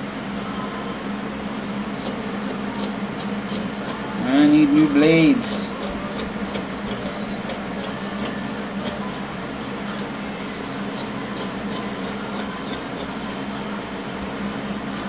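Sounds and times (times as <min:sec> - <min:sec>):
electric fan humming: 0:00.0 - 0:15.0
knife shaving wood: 0:02.0 - 0:09.2, 0:10.8 - 0:13.4.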